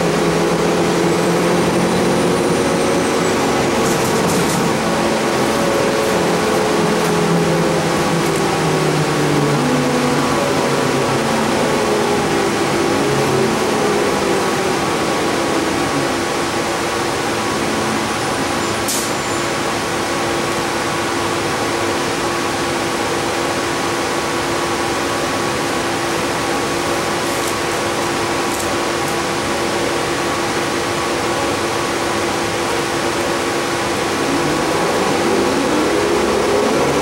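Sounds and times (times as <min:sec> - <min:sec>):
ventilation fans running: 0:00.0 - 0:18.2
bus engine idling: 0:00.0 - 0:37.0.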